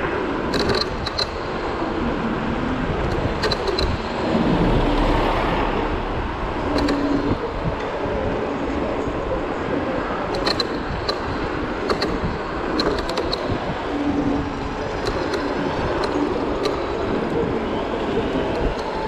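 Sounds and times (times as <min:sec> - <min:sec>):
wind and road noise: 0:00.0 - 0:19.0
sharp clicks: 0:00.5 - 0:01.5, 0:06.7 - 0:07.4, 0:10.3 - 0:13.6, 0:15.0 - 0:17.0.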